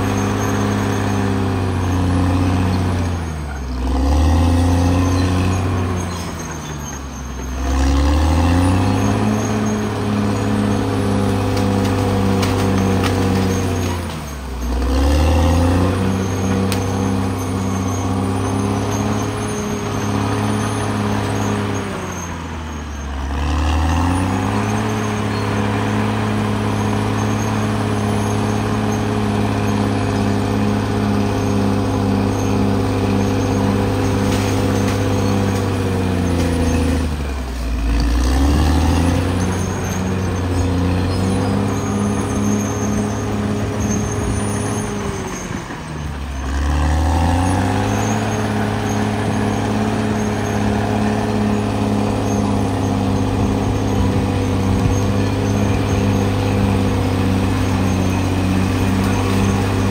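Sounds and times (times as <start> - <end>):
bulldozer diesel engine running: 0.0 - 59.9.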